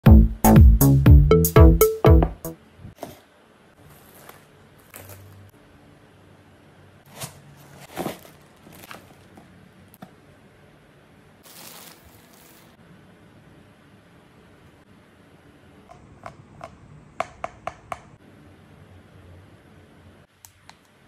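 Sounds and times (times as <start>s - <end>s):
cardboard and foam scrapes and rustles: 3.8s - 5.4s, 7.1s - 9.4s, 11.4s - 12.8s.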